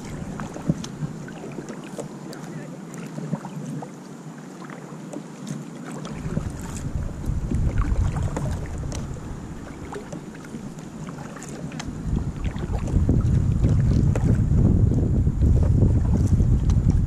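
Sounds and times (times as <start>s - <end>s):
kayak clicks and knocks: 0.1s - 3.8s, 5.1s - 17.0s
wind buffeting microphone: 6.1s - 10.8s, 11.7s - 17.0s.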